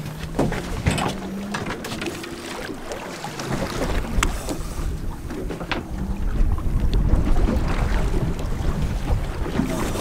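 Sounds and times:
water sloshing beside boat: 0.0s - 10.0s
wind buffeting microphone: 3.4s - 10.0s.

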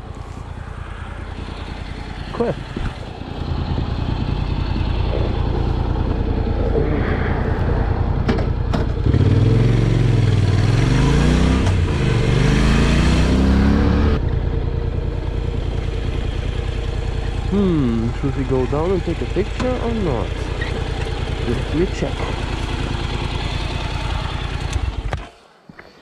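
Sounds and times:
motorcycle engine running: 0.0s - 25.4s.

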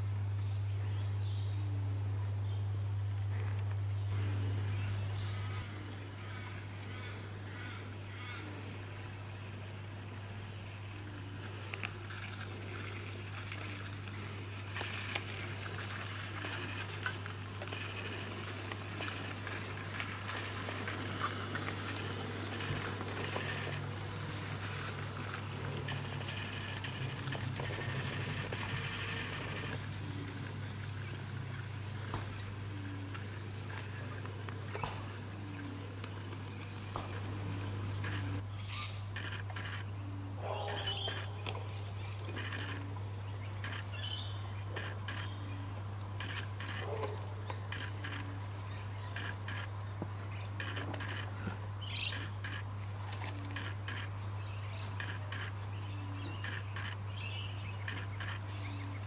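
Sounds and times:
model train motor hum: 10.4s - 38.4s
model train wheels clicking: 16.4s - 32.1s.

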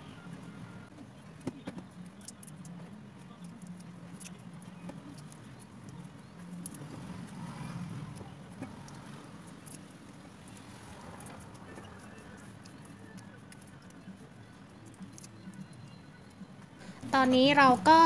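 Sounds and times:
shrimp shells clicking and crackling: 1.8s - 16.4s.

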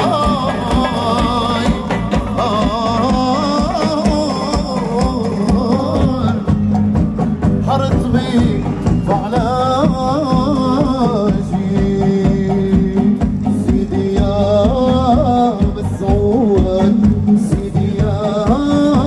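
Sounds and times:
low accompaniment: 0.0s - 19.0s.

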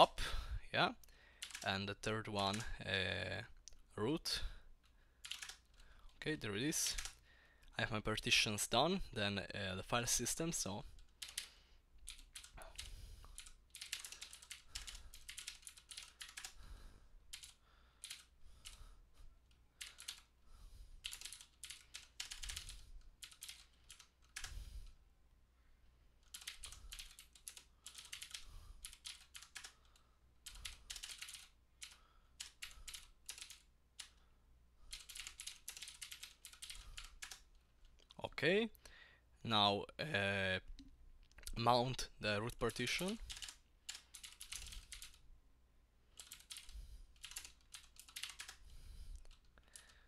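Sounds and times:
typing on computer keyboard: 1.4s - 1.7s, 2.5s - 2.7s, 5.2s - 6.1s, 6.9s - 7.2s, 11.0s - 16.6s, 17.3s - 18.8s, 19.8s - 20.3s, 21.0s - 24.6s, 26.2s - 34.2s, 34.9s - 38.2s, 43.0s - 45.2s, 46.1s - 50.0s.

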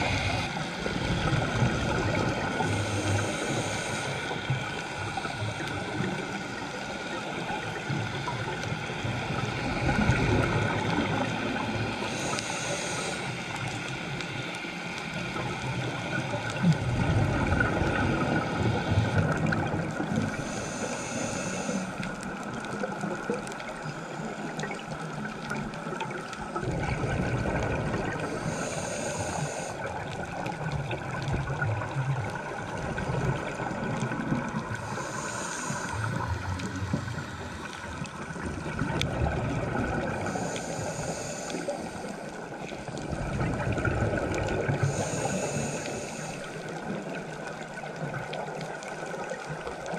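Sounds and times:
bubbles gurgling underwater: 0.0s - 3.9s, 4.5s - 12.3s, 15.3s - 20.4s, 24.5s - 28.6s, 29.8s - 40.4s, 42.4s - 45.5s
scuba regulator breathing: 0.0s - 10.6s, 11.5s - 17.1s, 17.8s - 22.6s, 27.6s - 30.4s, 33.0s - 39.0s, 39.9s - 43.0s, 44.1s - 47.1s
steady hiss: 0.0s - 17.1s, 17.7s - 26.5s, 28.0s - 30.6s, 34.6s - 39.0s, 40.0s - 43.0s, 44.8s - 49.6s.

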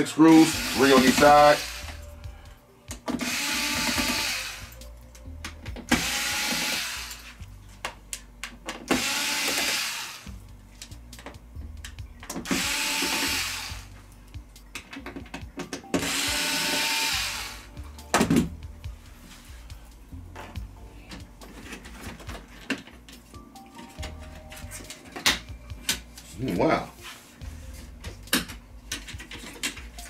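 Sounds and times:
power screwdriver whirring: 0.3s - 2.0s, 3.2s - 4.8s, 5.9s - 7.3s, 8.9s - 10.2s, 12.4s - 13.9s, 16.0s - 17.7s.

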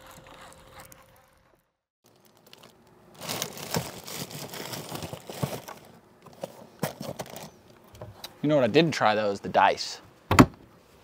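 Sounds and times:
rustling and crinkling: 2.0s - 8.3s.

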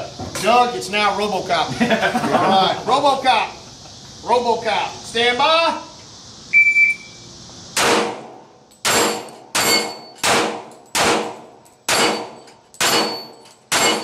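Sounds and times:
shot timer beep: 6.5s - 7.2s
pistol shots: 7.8s - 14.0s
steel targets ringing: 8.8s - 11.0s, 11.9s - 14.0s.

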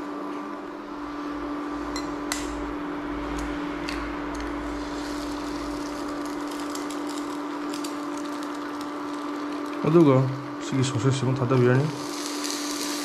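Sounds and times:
cooling fan hum: 0.0s - 13.0s
eggs crackling in oil: 4.4s - 13.0s.

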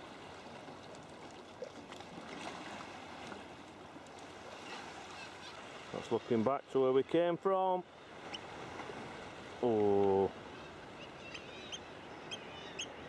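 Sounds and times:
paddle drips and splashes: 0.0s - 6.4s
water lapping against hull: 0.0s - 7.2s, 7.8s - 13.0s.

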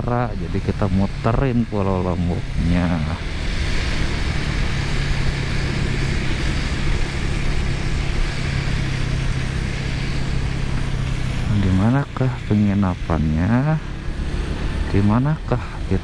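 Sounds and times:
wind noise: 0.0s - 15.9s
motorcycle engine cruising: 0.0s - 16.0s
road noise: 0.0s - 16.0s.

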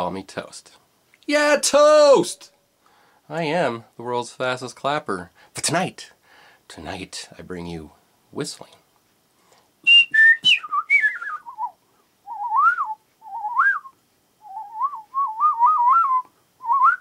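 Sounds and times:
man whistling: 9.8s - 17.0s.

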